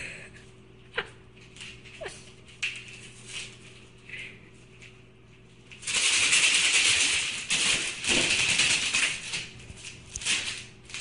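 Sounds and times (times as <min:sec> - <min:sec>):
papers rustling and rattling: 0:05.7 - 0:11.0.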